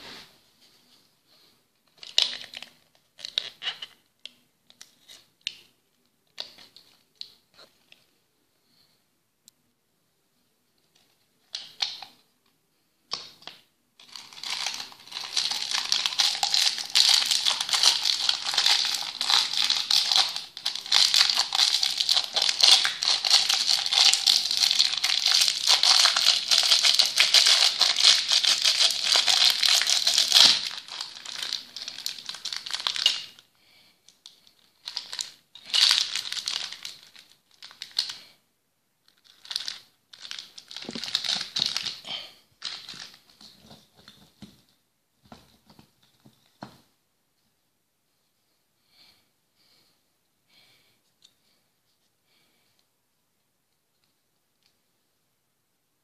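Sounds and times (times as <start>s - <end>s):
candies rattling: 14.0s - 33.4s, 34.4s - 38.2s, 39.1s - 43.3s
plastic bag crinkling: 14.0s - 33.5s, 34.3s - 38.3s, 39.0s - 43.8s.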